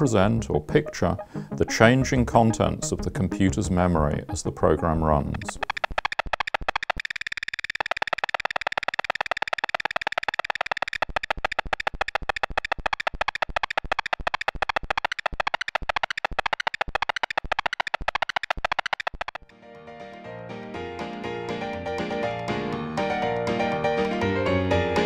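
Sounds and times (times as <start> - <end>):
soft keyboard notes: 0.0 - 6.0
pulsing synthesizer music: 0.0 - 19.4.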